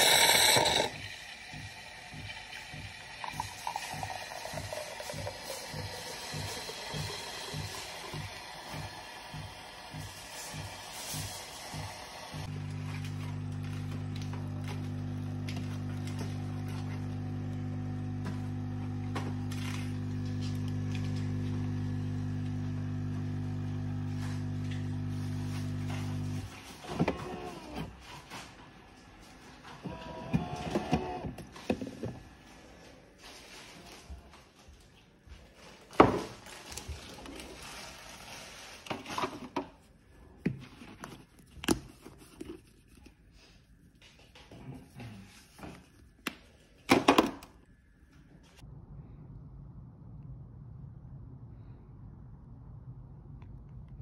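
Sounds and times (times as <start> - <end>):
coffee machine pump humming: 0.0 - 27.9, 29.7 - 32.4.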